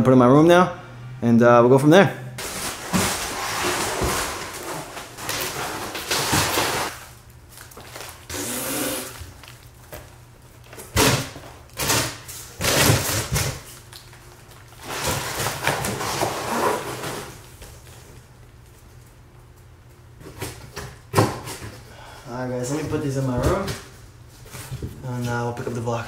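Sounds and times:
cardboard scraping and rustling: 2.4 - 7.0, 14.8 - 17.5.

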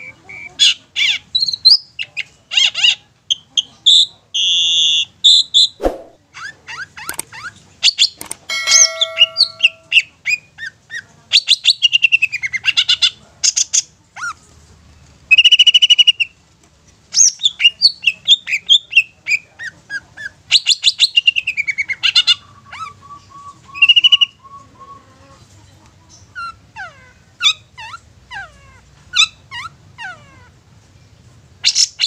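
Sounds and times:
bird singing chirps and whistles: 22.8 - 24.7.

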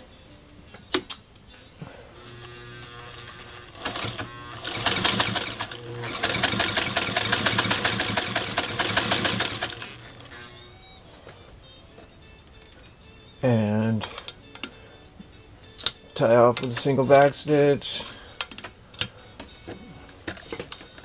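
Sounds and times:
sewing machine motor humming: 2.2 - 10.2.

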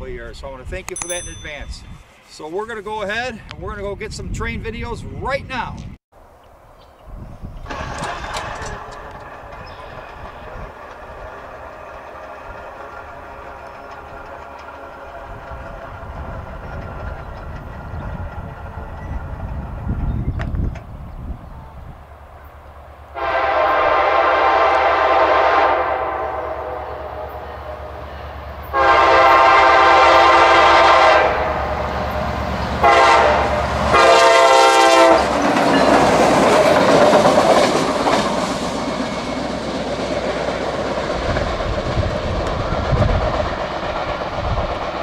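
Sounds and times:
locomotive engine drone: 6.2 - 20.3, 20.9 - 45.0
train wheels clicking over rail joints: 7.5 - 20.9, 35.1 - 45.0
locomotive air horn blasts: 23.2 - 31.6, 32.8 - 35.3.

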